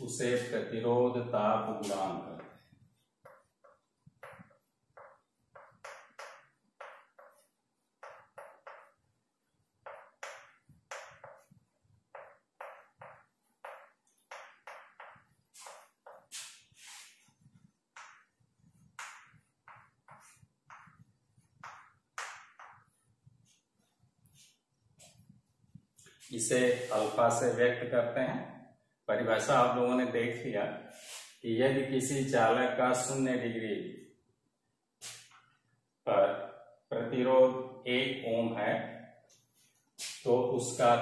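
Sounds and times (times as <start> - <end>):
chalk scratching on chalkboard: 0.1 - 0.7, 1.7 - 27.6, 30.9 - 31.4.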